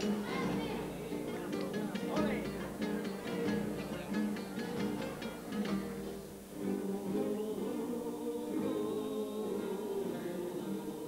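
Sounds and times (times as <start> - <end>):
guitars: 0.0 - 11.0
men's choir singing in harmony: 6.6 - 11.0.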